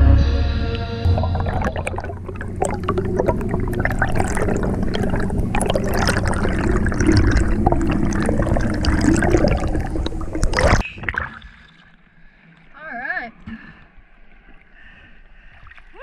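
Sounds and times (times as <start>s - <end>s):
low steady hum: 0.0s - 13.8s
underwater bubbling: 1.0s - 12.4s.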